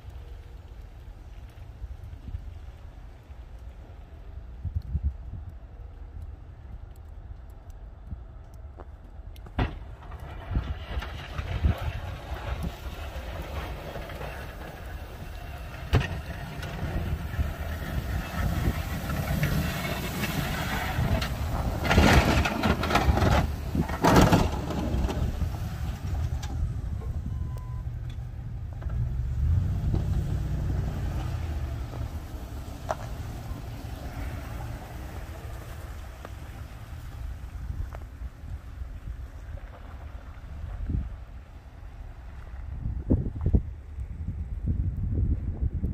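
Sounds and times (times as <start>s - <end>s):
plow blade scraping: 9.6s - 40.9s.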